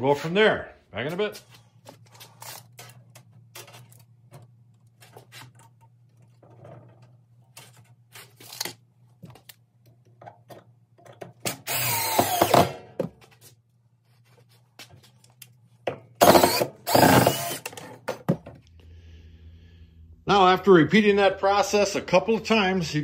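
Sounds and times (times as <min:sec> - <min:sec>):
power drill running: 0:11.5 - 0:12.8, 0:16.2 - 0:17.8.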